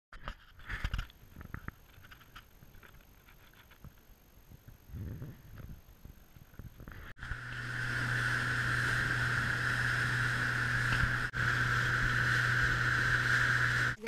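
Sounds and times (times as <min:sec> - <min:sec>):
outboard motor running: 0:07.2 - 0:14.0.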